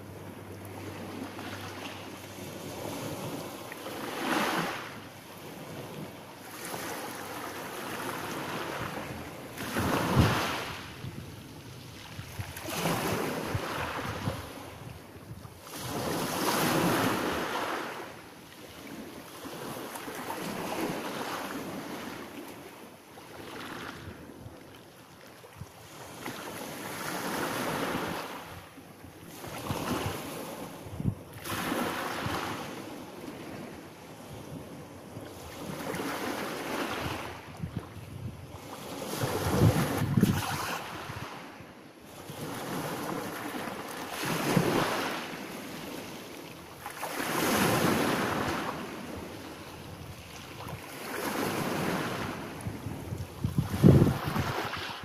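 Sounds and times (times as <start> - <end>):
waves washing up pebble beach: 9.6 - 10.9.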